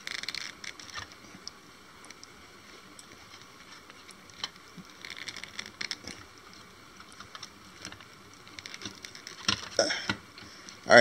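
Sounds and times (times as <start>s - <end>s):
plastic clicks and rustling: 7.0s - 10.8s.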